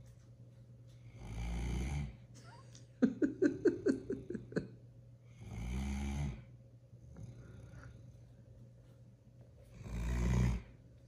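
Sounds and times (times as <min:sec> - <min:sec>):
puppy snoring: 0:01.1 - 0:02.3, 0:05.2 - 0:08.2, 0:09.7 - 0:10.8.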